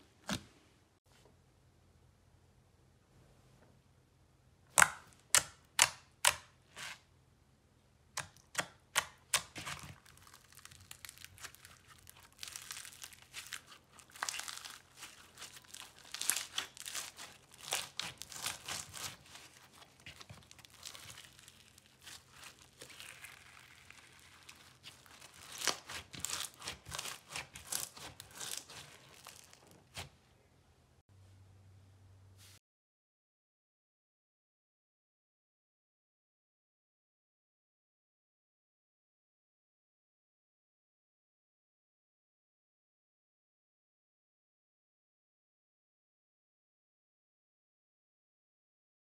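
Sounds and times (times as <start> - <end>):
crunchy crackling of slime kneading: 8.2 - 30.2
slime popping: 9.3 - 30.0.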